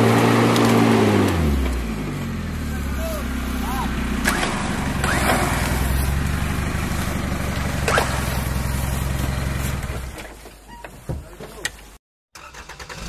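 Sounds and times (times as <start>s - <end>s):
car engine idling: 1.6s - 10.2s.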